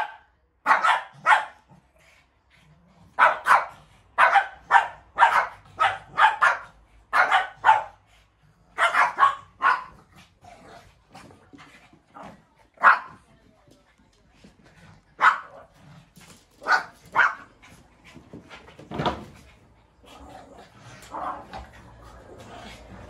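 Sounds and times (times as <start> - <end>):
dogs barking: 0.0 - 1.6, 3.2 - 8.0, 8.7 - 10.1, 15.2 - 15.7, 16.6 - 17.6.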